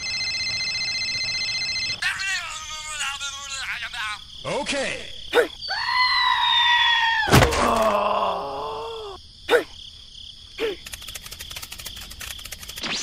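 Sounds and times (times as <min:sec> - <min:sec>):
low groaning voice: 0:07.5 - 0:09.6.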